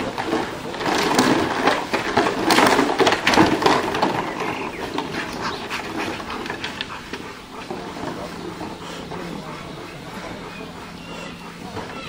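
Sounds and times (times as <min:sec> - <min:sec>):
plastic bottles rattling: 0:00.0 - 0:08.4.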